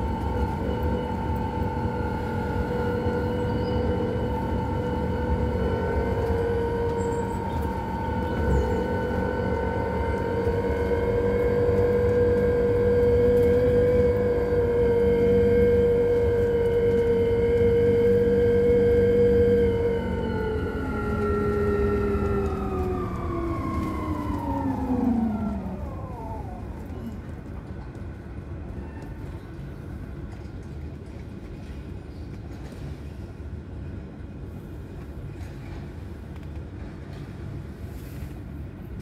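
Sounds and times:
road rumble: 0.0s - 39.0s.

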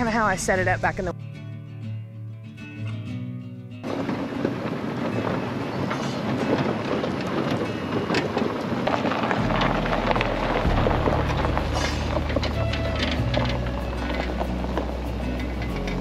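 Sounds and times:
golf cart body rattling: 3.8s - 16.0s
steady rushing noise: 3.8s - 16.0s
low steady hum: 9.2s - 16.0s.

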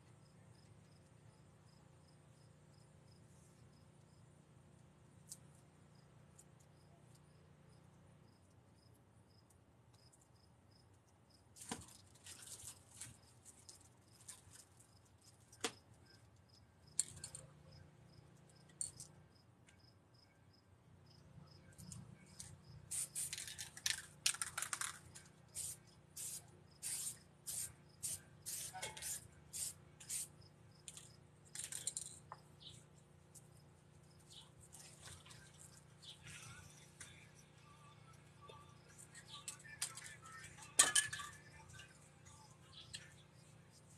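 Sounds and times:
spray paint can hissing: 22.9s - 25.0s, 25.6s - 30.3s
spray can clicks: 28.5s - 30.3s.

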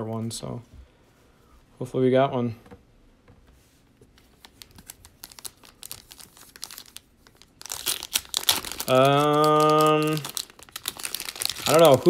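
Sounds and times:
plastic wrapper crinkling and tearing: 4.3s - 12.0s.

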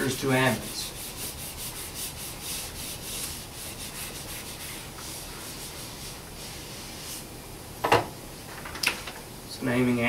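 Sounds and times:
eraser rubbing on whiteboard: 0.0s - 7.2s.

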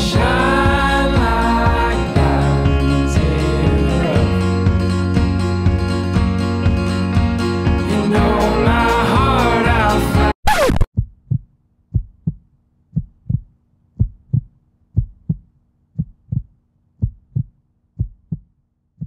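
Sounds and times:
music playing: 0.0s - 10.4s
stylus scraping vinyl record: 10.4s - 10.9s
heartbeat thumps: 10.9s - 19.0s.

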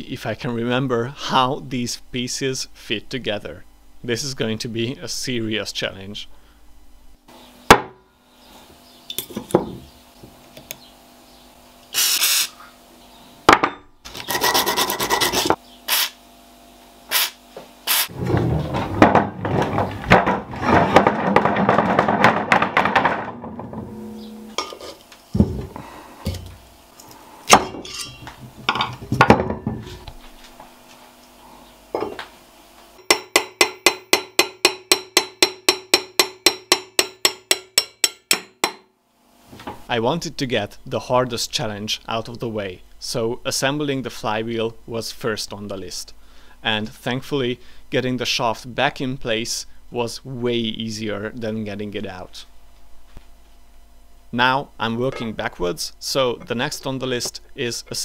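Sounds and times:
aerosol can spraying: 17.1s - 18.1s
metal parts knocking on wood: 18.2s - 24.6s.

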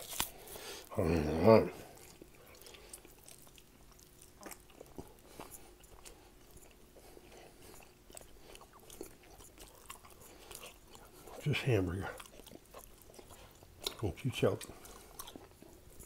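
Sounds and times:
man chewing wet mouth clicks: 1.8s - 16.0s.

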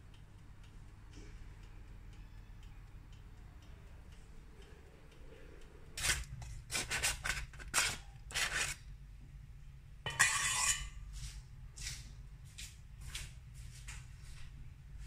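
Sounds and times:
knife scraping butter: 6.0s - 8.8s.

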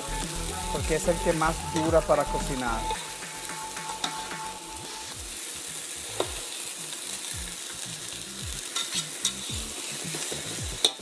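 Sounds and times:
food sizzling in oil: 0.0s - 11.0s
metal tongs clicking on pot: 8.7s - 9.5s.

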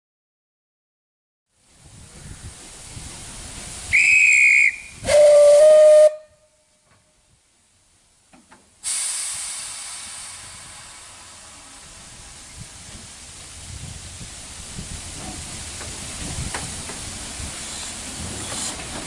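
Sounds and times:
loud hiss of escaping steam: 1.7s - 6.2s, 8.8s - 19.0s
high train whistle blast: 3.9s - 6.6s
low steam whistle: 3.9s - 6.8s.

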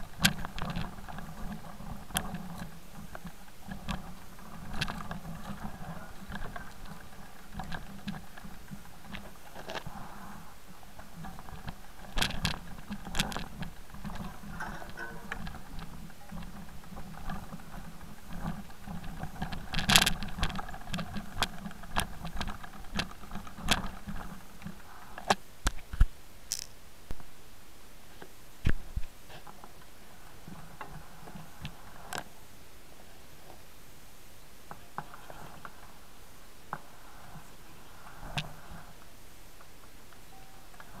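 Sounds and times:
bike rattling: 0.0s - 25.4s, 26.5s - 26.8s
tyres crunching on stones: 26.5s - 26.8s.

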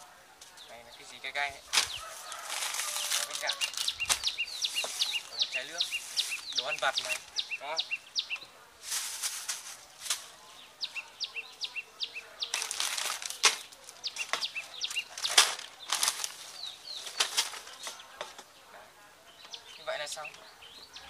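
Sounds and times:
small birds chirping: 0.0s - 21.0s
plastic packets rustling: 1.6s - 7.4s, 8.8s - 10.4s, 12.4s - 18.0s.

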